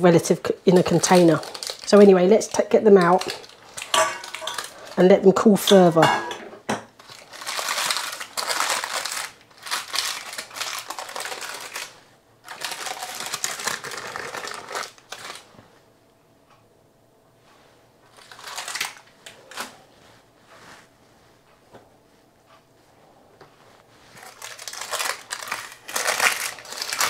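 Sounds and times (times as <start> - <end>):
baking parchment rustling: 0.1 - 6.0, 7.0 - 15.7, 18.0 - 20.9, 23.6 - 27.0.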